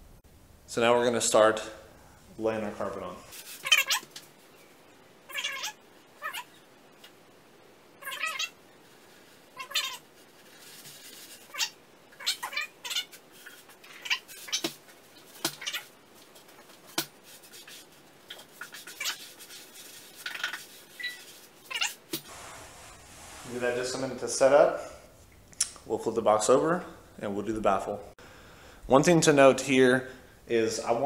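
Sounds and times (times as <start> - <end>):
fabric peeling and rubbing: 9.6 - 24.0.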